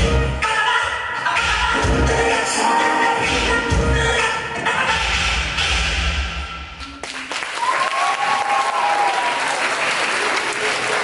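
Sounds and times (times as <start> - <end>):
dance music: 0.0 - 6.4
audience applauding: 7.0 - 11.0.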